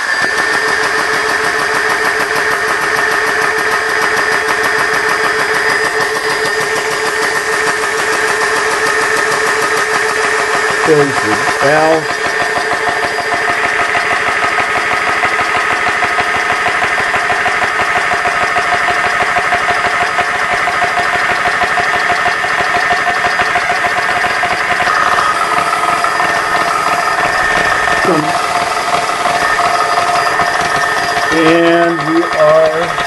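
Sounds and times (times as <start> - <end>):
air compressor humming: 0.0 - 33.0
high-pitched whine: 5.3 - 13.9, 23.0 - 33.0.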